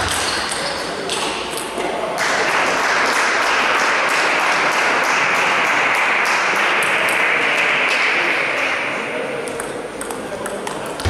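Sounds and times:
table tennis ball clicking: 9.5s - 11.0s.

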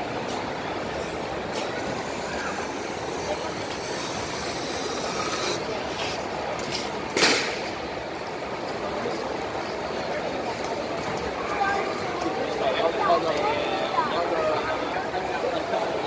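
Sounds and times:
crowd voices in a hall: 0.0s - 16.0s.

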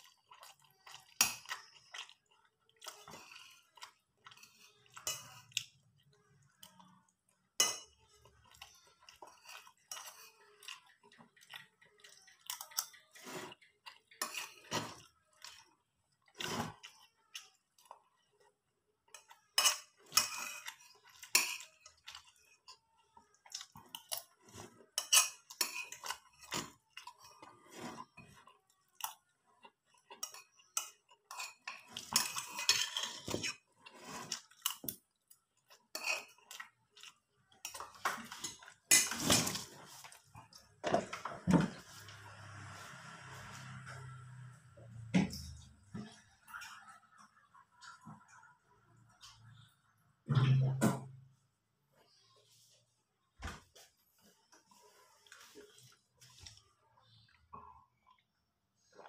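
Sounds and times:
chewing: 0.0s - 41.3s.

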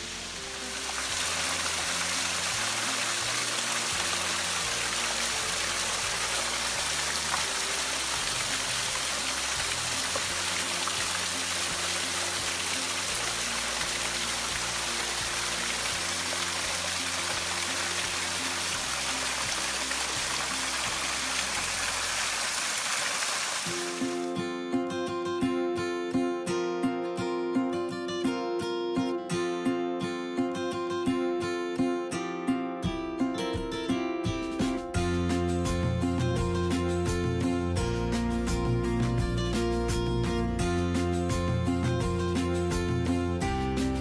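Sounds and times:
waterfall rushing over rocks: 0.0s - 24.3s
background music: 0.0s - 44.0s.

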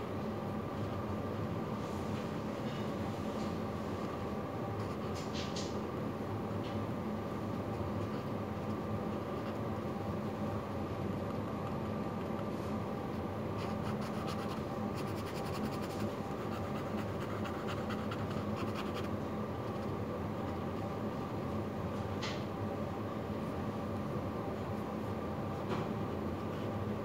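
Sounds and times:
steady background hum: 0.0s - 27.0s
pen scratching on paper: 13.6s - 19.1s.

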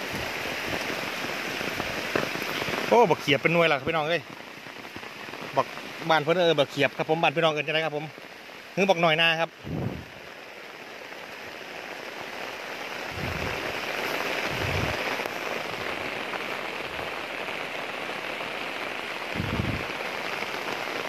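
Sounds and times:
heavy rain on leaves: 0.0s - 21.0s
short low thumps: 19.4s - 19.8s.

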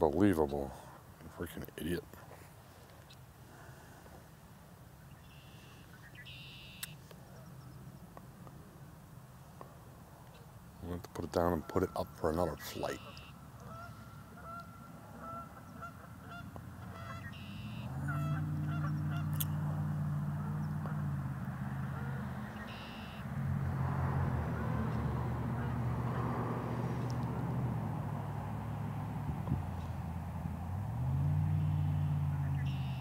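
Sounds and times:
geese honking: 11.1s - 23.2s, 24.4s - 27.5s, 31.6s - 33.0s
low steady engine-like hum: 12.0s - 33.0s.

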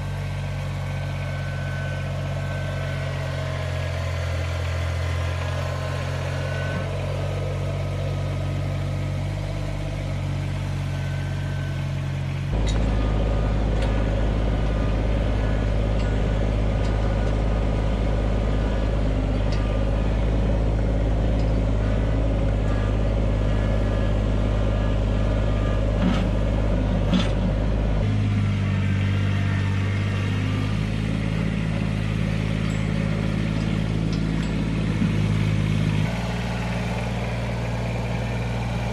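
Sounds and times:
tractor engine running: 0.0s - 38.9s.

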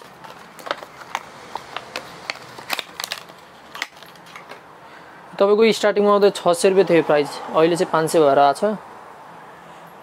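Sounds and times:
plastic box clicks and crackles: 0.0s - 4.6s.

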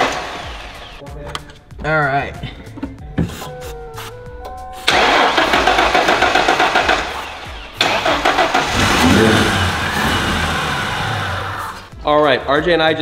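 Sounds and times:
car engine cranking: 4.9s - 11.9s.

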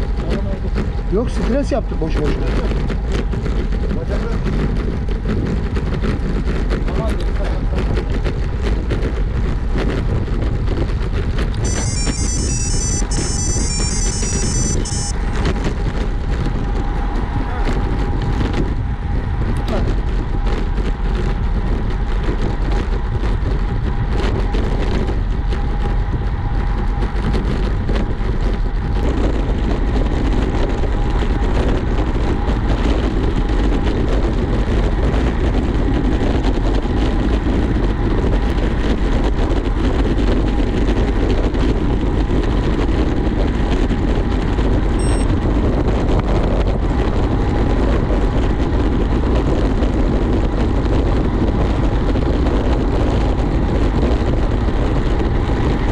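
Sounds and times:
wind and road noise: 0.0s - 55.9s
faint steady whine: 11.6s - 15.2s, 45.0s - 45.3s.

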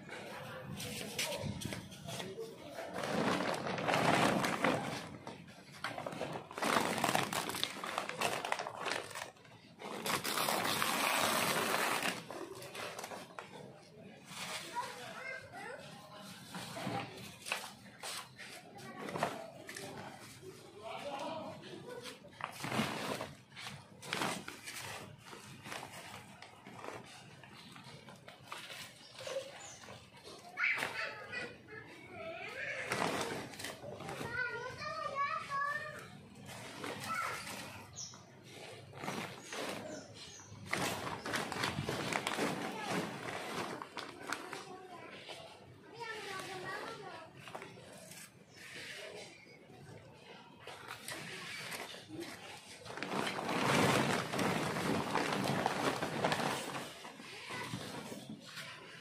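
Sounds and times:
plastic sack rustling and crinkling: 0.7s - 31.4s, 32.6s - 45.3s, 50.7s - 59.0s
hand shovel scraping compost: 36.6s - 43.8s.

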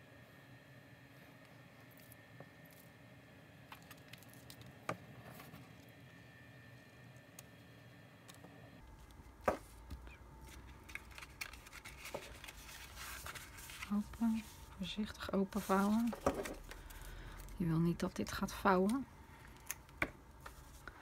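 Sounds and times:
paper rustling: 10.4s - 17.1s.

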